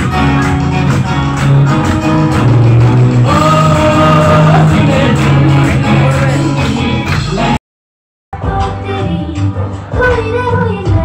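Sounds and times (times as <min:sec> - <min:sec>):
steady bass beat: 0:00.0 - 0:07.6
person singing: 0:03.2 - 0:07.6.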